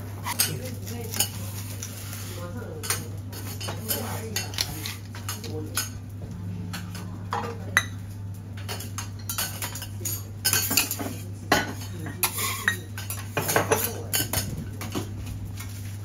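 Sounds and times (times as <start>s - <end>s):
steady low hum: 0.0s - 13.4s
metal utensils clinking: 8.6s - 15.1s.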